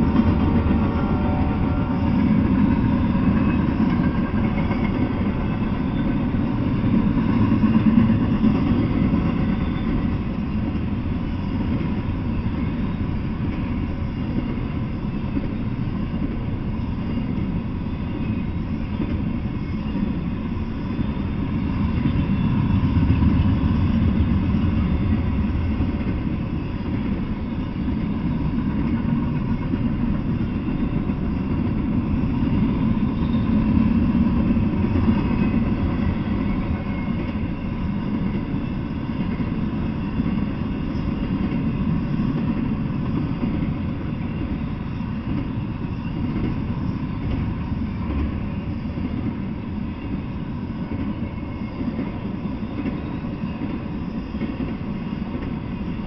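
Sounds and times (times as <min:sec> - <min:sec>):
freight train wheels rumbling on rail: 0:00.0 - 0:56.0.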